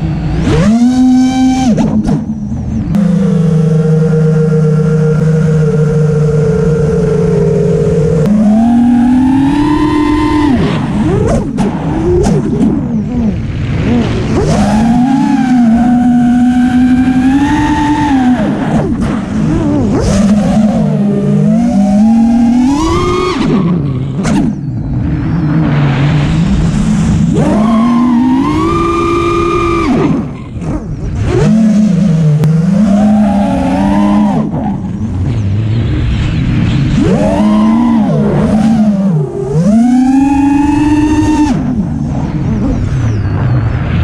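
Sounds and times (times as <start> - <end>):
drone motors whining: 0.0 - 44.0.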